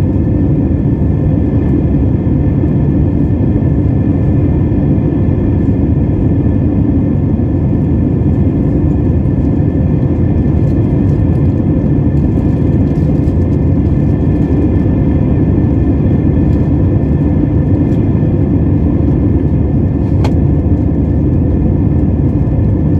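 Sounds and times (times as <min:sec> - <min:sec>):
jet engine roar in cabin: 0:00.0 - 0:22.9.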